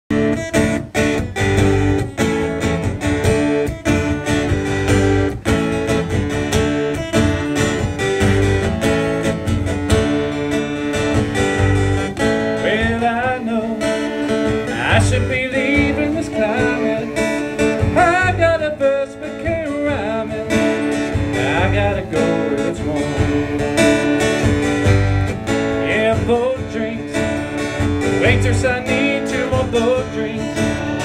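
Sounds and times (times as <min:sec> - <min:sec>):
acoustic guitar strumming: 0:00.1 - 0:31.0
person singing: 0:12.6 - 0:24.3, 0:25.8 - 0:27.5, 0:28.2 - 0:31.0.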